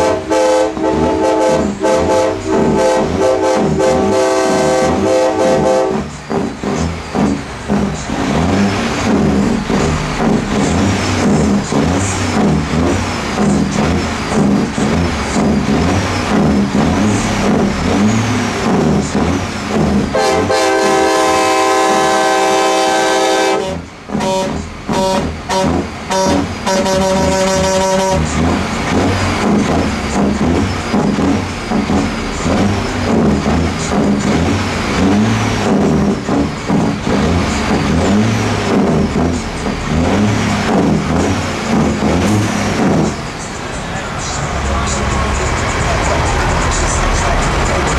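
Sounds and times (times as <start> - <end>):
truck train horn chord: 0.0 - 6.4, 19.8 - 29.9
diesel truck engine running: 0.0 - 47.9.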